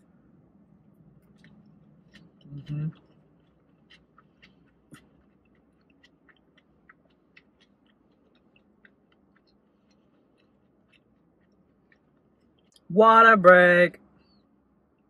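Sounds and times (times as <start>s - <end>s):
close-miked chewing: 0.9s - 12.9s.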